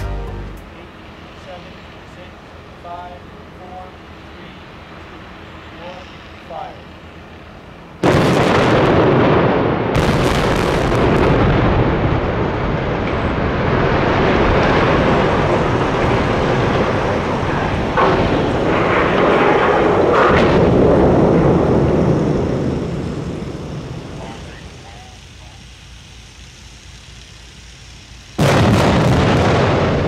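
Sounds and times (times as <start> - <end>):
building collapsing rumble: 8.0 - 24.8, 28.4 - 30.0
explosive blasts: 8.0 - 24.8, 28.3 - 30.0.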